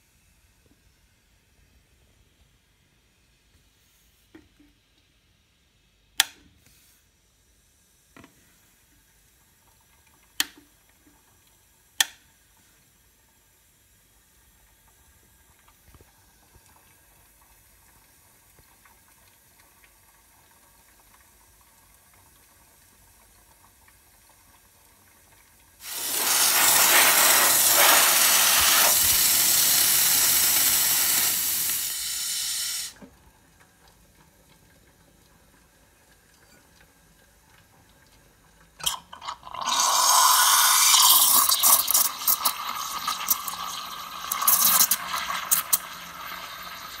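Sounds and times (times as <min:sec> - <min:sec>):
steam hissing: 0:25.8 - 0:33.0, 0:39.8 - 0:45.8.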